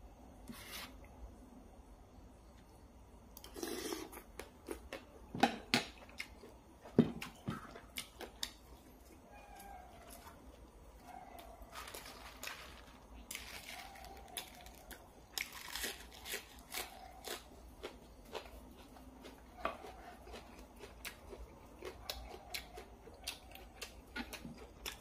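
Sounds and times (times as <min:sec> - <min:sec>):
man chewing with crunches: 0:03.4 - 0:05.2, 0:05.8 - 0:25.0.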